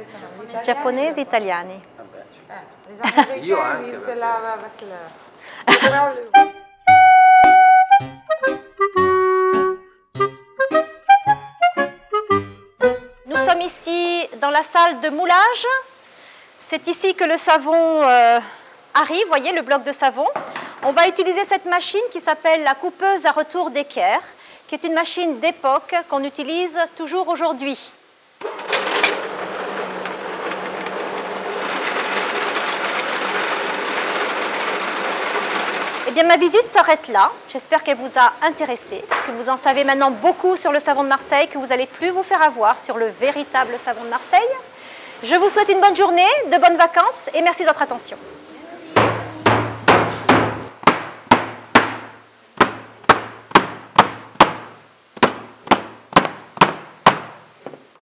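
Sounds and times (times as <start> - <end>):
soap-cutting machine humming: 28.4 - 36.2
hammer striking metal stamp: 49.0 - 57.3.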